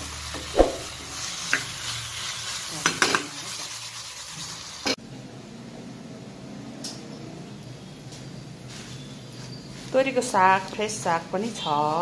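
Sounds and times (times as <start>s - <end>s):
prawns sizzling in a pan: 0.0s - 5.0s.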